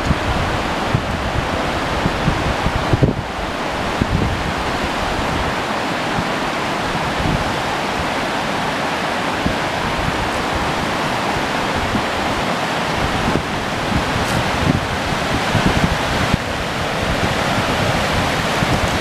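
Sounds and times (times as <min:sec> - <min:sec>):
river water rushing over rocks: 0:00.0 - 0:19.0.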